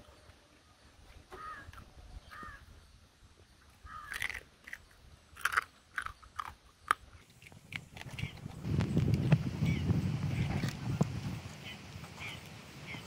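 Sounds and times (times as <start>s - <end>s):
crab shell crunching while chewed: 4.0s - 9.4s.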